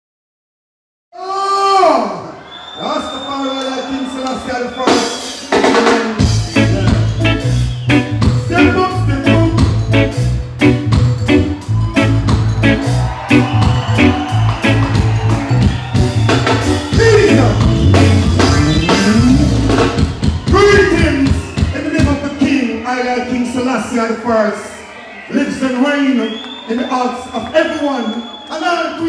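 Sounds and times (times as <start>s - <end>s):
reggae band playing: 3.8s - 24.2s
heavy bass line: 6.2s - 20.7s.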